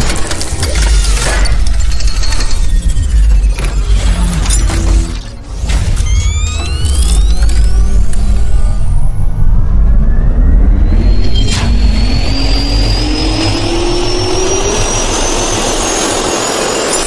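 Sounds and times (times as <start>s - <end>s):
jet engine spooling up: 6.1s - 17.0s.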